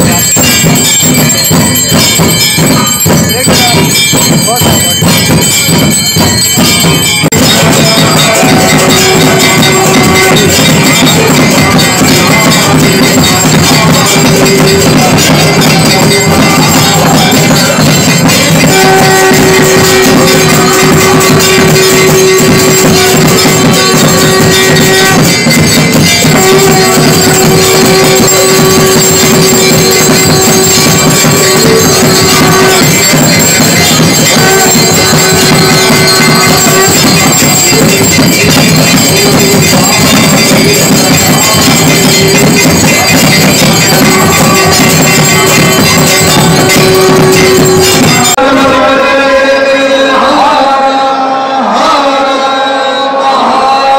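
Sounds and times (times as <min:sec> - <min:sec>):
brass handbells clanging: 0:00.0 - 0:49.6
long held note: 0:07.7 - 0:17.8, 0:18.4 - 0:40.0, 0:41.4 - 0:50.0.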